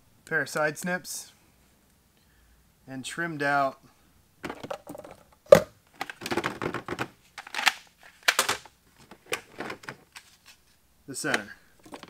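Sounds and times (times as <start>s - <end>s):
plastic trays clacking and scraping: 4.4s - 10.4s, 11.3s - 12.0s.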